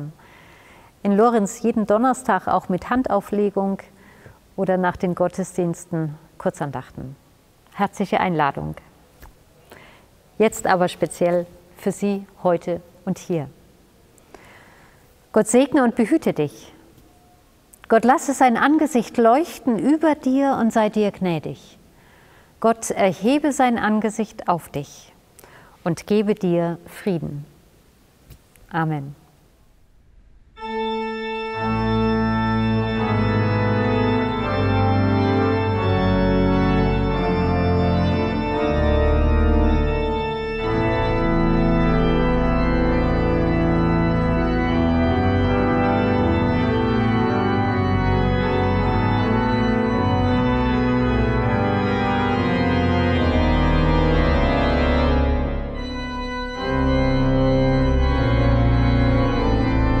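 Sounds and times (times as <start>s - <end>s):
pipe organ playing: 30.6s - 60.0s.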